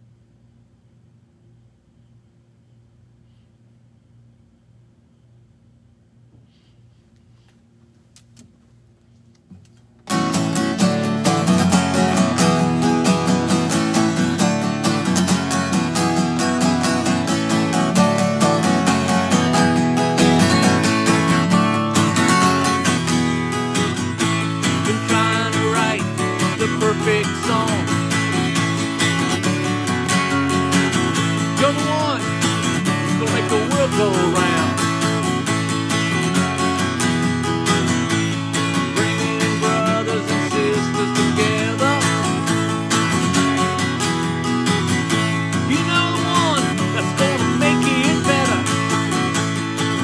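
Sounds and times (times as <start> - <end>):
acoustic guitar strumming: 10.0 - 50.0
man singing: 24.2 - 28.6, 30.1 - 35.5, 38.5 - 43.1, 45.6 - 49.4.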